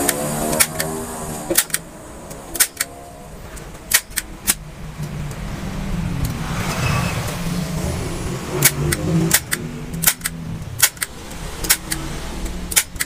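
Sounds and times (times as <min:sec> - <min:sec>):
staple gun snapping: 0:00.0 - 0:00.9, 0:01.5 - 0:01.8, 0:02.6 - 0:02.9, 0:03.9 - 0:04.6, 0:08.6 - 0:12.0, 0:12.7 - 0:13.0
low rumble: 0:00.9 - 0:12.8.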